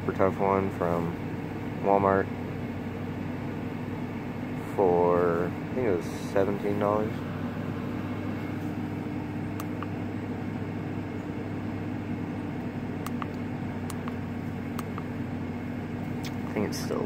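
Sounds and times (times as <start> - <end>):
truck engine idling: 0.0 - 17.0
faint engine ticks: 9.4 - 10.0, 12.5 - 15.3, 15.9 - 17.0.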